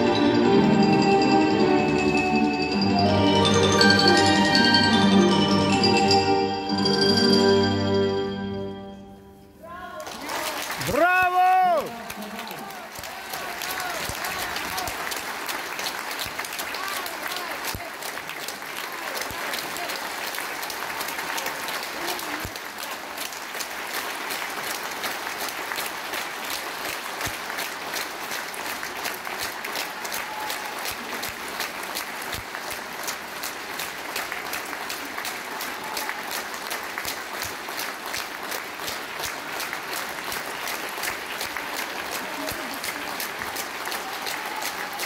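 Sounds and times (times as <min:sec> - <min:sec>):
audience applauding: 0:09.7 - 0:45.0.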